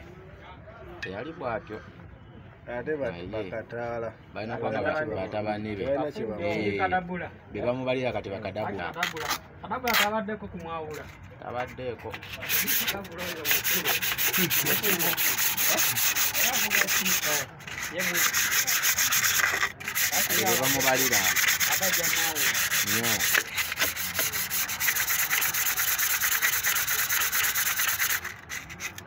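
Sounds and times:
abrasive sheet scrubbing metal: 12.1 - 29.0.

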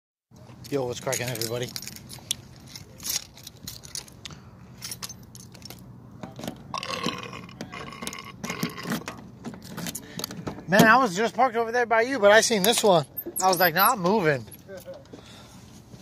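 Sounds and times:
keys jangling: 1.0 - 5.9
man belching: 6.7 - 9.0.

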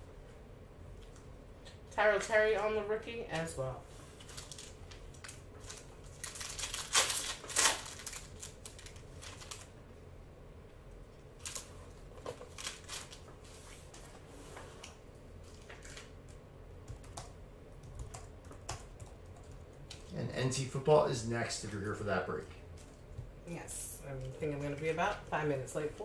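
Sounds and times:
trading cards rustling: 4.1 - 9.7, 11.4 - 14.1.

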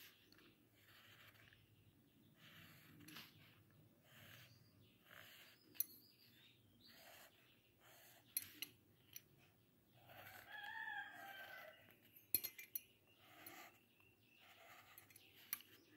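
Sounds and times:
pencil scratching on paper: 0.0 - 12.2, 13.0 - 15.9
rooster crowing: 10.2 - 11.9.

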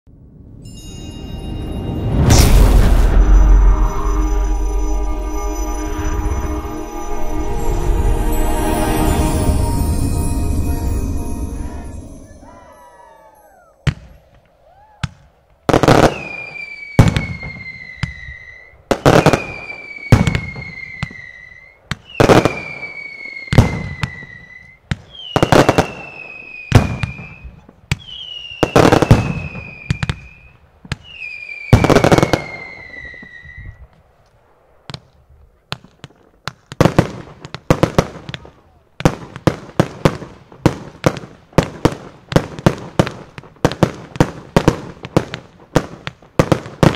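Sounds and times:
fireworks bangs: 0.2 - 33.9, 34.5 - 46.9
falling firework whistle: 0.5 - 34.0.

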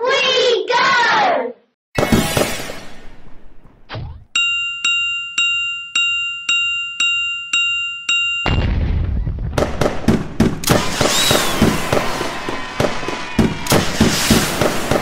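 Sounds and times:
firework pops and bangs: 8.8 - 15.0
high falling whistle: 10.7 - 14.7.

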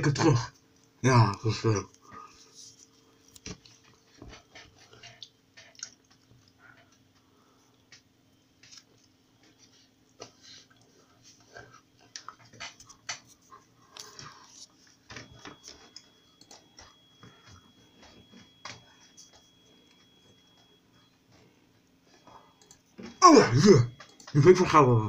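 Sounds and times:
faint high tone: 22.6 - 25.0.

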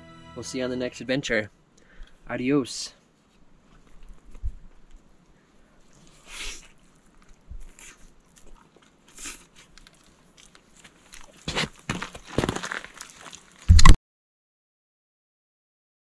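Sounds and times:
person chewing crunchy food: 5.9 - 13.9.

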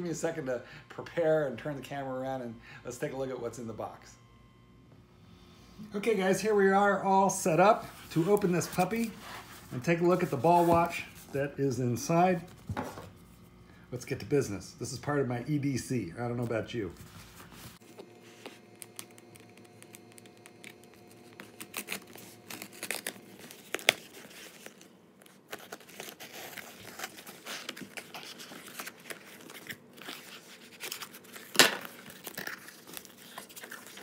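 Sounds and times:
cardboard scratching and crinkling: 7.9 - 11.3, 17.0 - 34.0.

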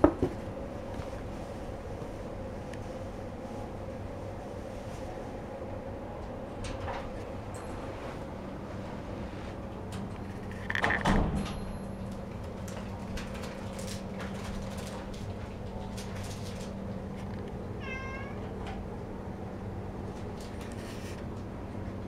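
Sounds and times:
steady low hum: 0.0 - 22.0
cat meowing: 17.8 - 18.6.

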